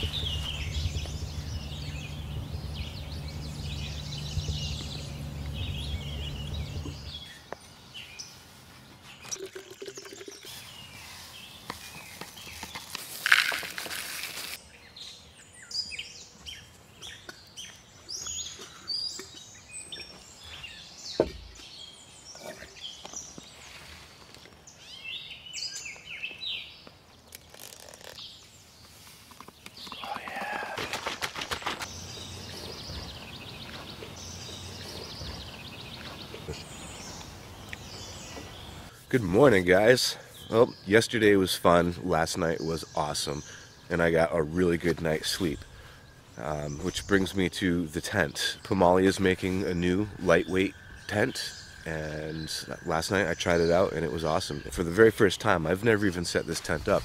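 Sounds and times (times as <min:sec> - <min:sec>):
low steady rumble: 0:00.0 - 0:07.2
small birds chirping: 0:00.0 - 0:57.0
milk pouring over cereal: 0:09.3 - 0:10.5
plastic bottle handling: 0:11.7 - 0:14.6.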